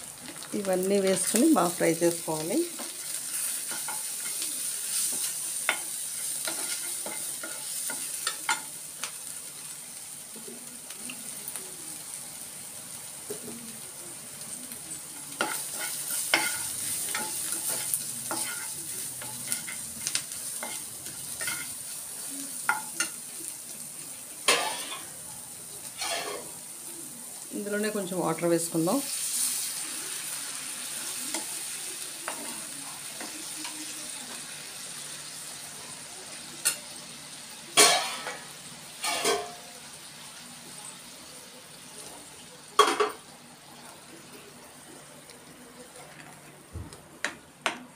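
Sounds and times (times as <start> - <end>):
food sizzling in a pan: 0.0 - 47.9
spatula scraping a pan: 2.7 - 8.8, 15.2 - 22.0, 26.0 - 26.5.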